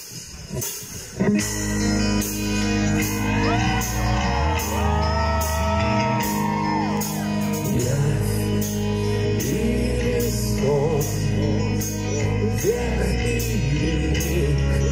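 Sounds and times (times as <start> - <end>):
drum kit beat: 0.0 - 14.6
electric bass and guitar: 0.0 - 14.9
person singing long notes: 2.6 - 14.9.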